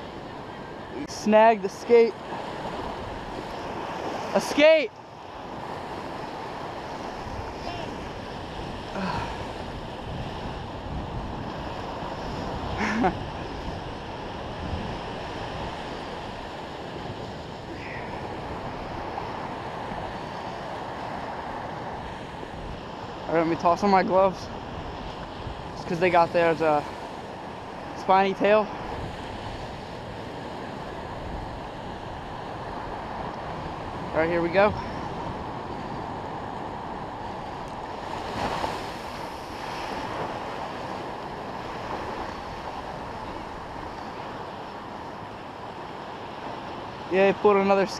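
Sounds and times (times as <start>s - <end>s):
ocean surf breaking on beach: 0.0s - 47.9s
wind on microphone: 5.6s - 23.0s.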